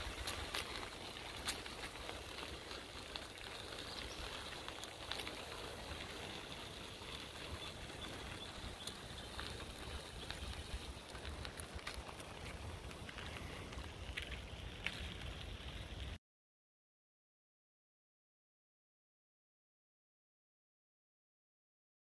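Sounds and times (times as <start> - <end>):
bicycle tyres rolling on gravel: 0.0 - 16.2.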